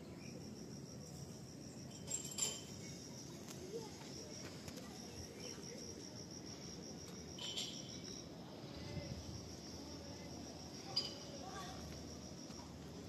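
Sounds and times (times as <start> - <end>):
insect chirping: 0.0 - 13.0
low background noise: 0.0 - 13.0.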